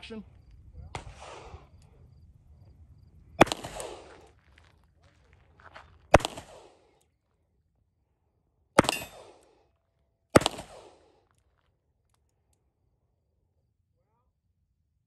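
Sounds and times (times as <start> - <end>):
revolver shots with echo: 3.4 - 4.2, 6.1 - 6.8, 8.8 - 9.4, 10.4 - 11.0.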